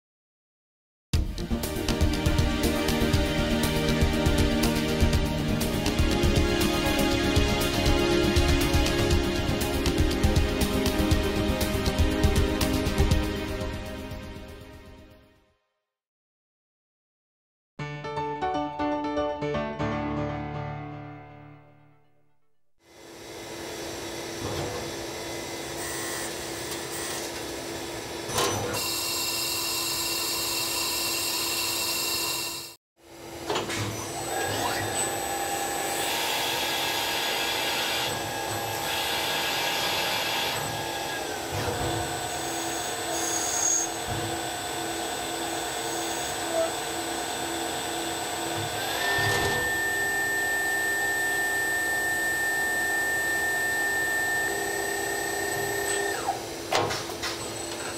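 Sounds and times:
lathe machine running: 34.3s - 56.7s
whining spindle tones: 48.4s - 56.5s.

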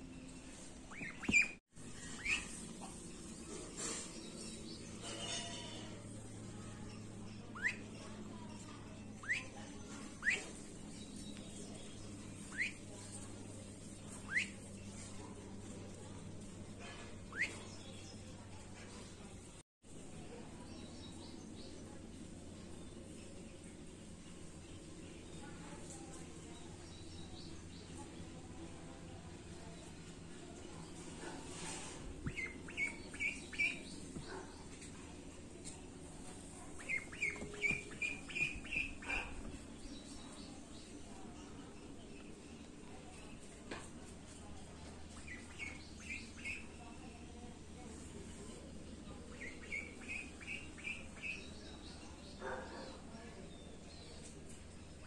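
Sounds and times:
duckling peeping: 0.8s - 2.8s, 7.5s - 8.0s, 9.2s - 11.2s, 11.8s - 12.9s, 14.0s - 14.8s, 17.2s - 18.2s, 32.2s - 35.0s, 36.1s - 40.1s, 45.0s - 46.8s, 49.3s - 51.6s.

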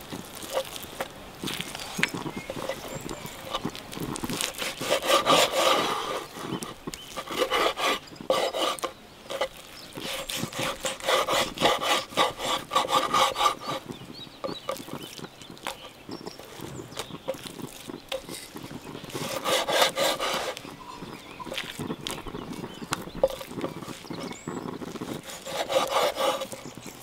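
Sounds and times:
knife sawing through meat: 2.5s - 14.9s, 17.3s - 21.6s, 22.3s - 26.8s.

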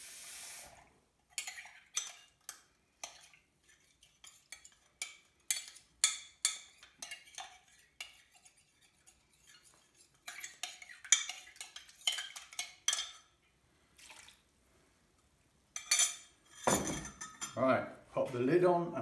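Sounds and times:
cutlery clinking against glass jug: 1.3s - 3.4s, 4.2s - 13.4s, 15.8s - 17.6s.

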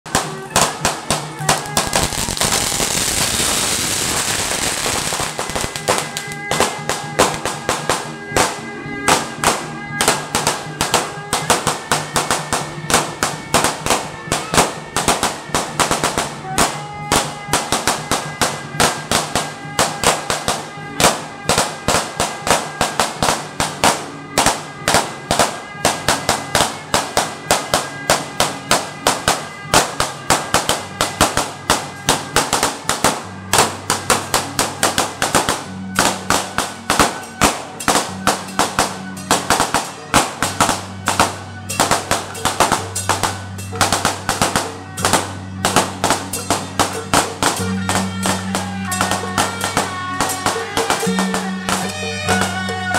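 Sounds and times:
drum beating: 0.0s - 52.9s
hand cymbals: 24.4s - 52.9s.

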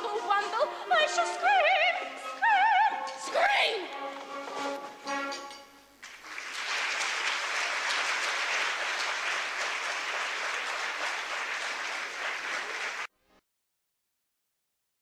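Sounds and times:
audience applauding: 6.0s - 13.1s.

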